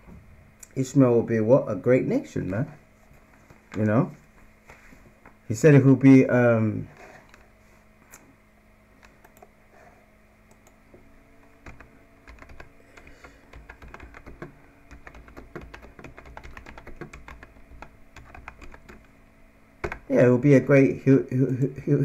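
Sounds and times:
typing on computer keyboard: 0:11.6 - 0:19.1, 0:19.8 - 0:20.0.

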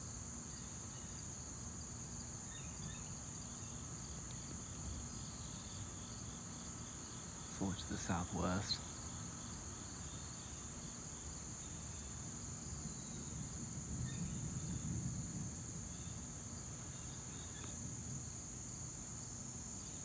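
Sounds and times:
insects chirping: 0:00.0 - 0:20.0
distant thunder rumble: 0:12.8 - 0:17.3.

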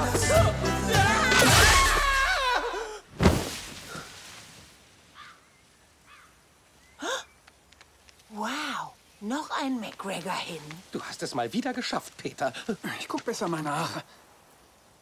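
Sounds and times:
song with singing: 0:00.0 - 0:02.8
heavy thud of body hitting ground: 0:03.2 - 0:03.9.

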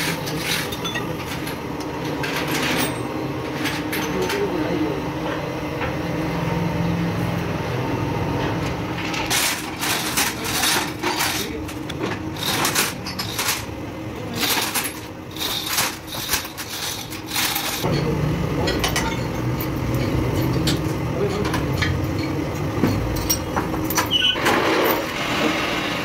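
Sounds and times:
metal parts clanking: 0:00.0 - 0:04.6, 0:09.0 - 0:13.7, 0:14.3 - 0:25.1
steady machine hum: 0:00.0 - 0:26.0.

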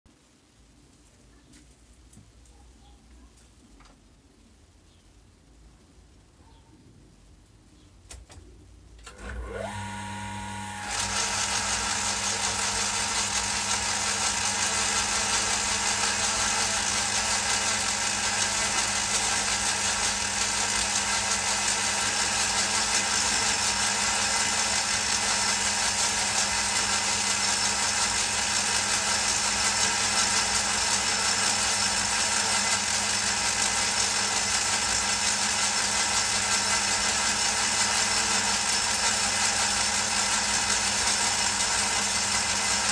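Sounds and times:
metal lathe whining and rattling: 0:09.0 - 0:42.9.

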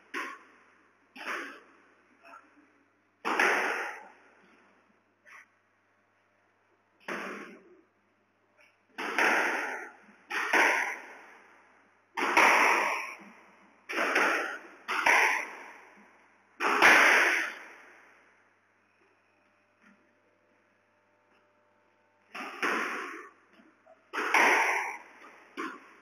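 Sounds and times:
squash ball cracks echoing: 0:03.2 - 0:04.5, 0:07.0 - 0:07.7, 0:09.0 - 0:18.2, 0:22.3 - 0:26.0.

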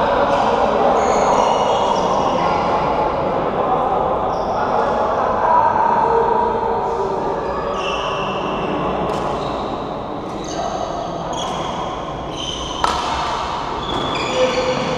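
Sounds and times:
sports hall din: 0:00.0 - 0:14.9
racket hitting shuttlecock: 0:09.1 - 0:09.4, 0:12.6 - 0:14.2
shoes squeaking on court floor: 0:09.1 - 0:14.9.

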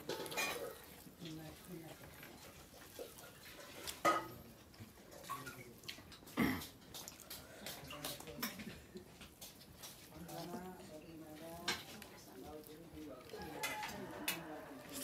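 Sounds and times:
light clicks of plate and bowl: 0:05.2 - 0:10.3, 0:13.3 - 0:15.0.

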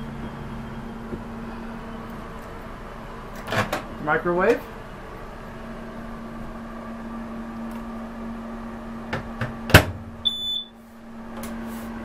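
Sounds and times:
steady low hum: 0:00.0 - 0:12.0
short electronic beep: 0:10.2 - 0:10.7.

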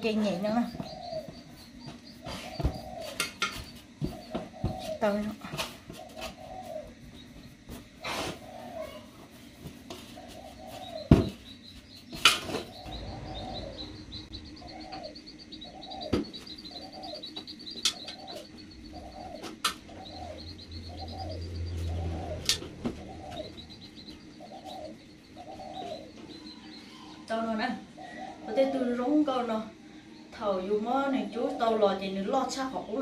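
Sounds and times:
fast high bird chirping: 0:00.0 - 0:05.2, 0:10.1 - 0:27.2
bird low call: 0:12.6 - 0:27.3.

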